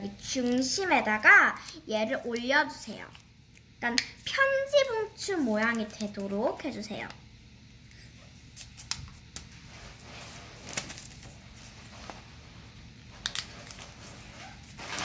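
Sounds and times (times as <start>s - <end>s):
paper being folded and creased: 9.8s - 12.2s, 13.2s - 15.0s.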